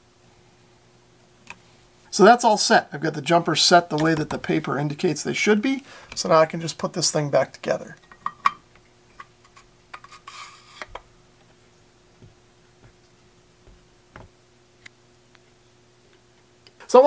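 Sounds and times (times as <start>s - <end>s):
faint steady hum: 0.0s - 17.0s
brief scrape: 10.0s - 10.9s.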